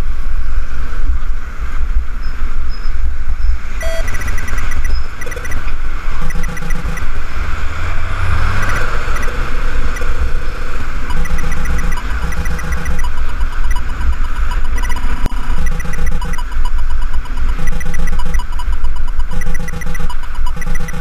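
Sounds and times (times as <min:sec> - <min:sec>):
wind on microphone: 0:00.0 - 0:15.6
traffic rumble: 0:00.0 - 0:21.0.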